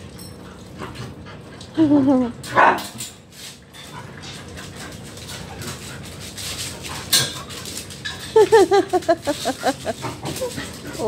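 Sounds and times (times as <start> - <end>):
dogs scuffling: 2.8 - 11.0.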